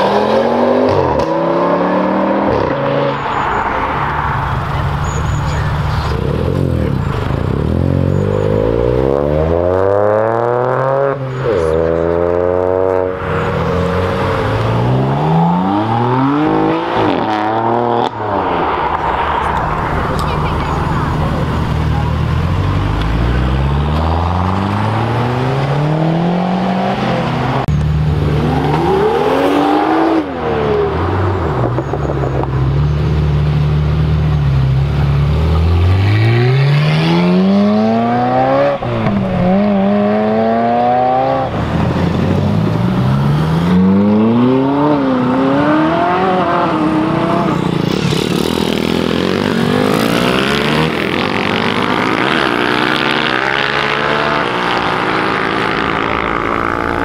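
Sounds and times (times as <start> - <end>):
sports car accelerating with gear changes: 0.0 - 3.4, 21.4 - 57.0
car engines revving: 0.0 - 57.0.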